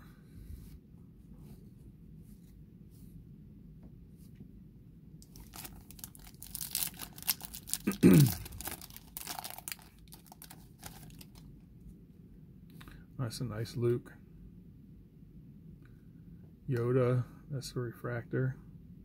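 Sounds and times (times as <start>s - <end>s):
foil wrapper tearing and crinkling: 5.2s - 11.4s.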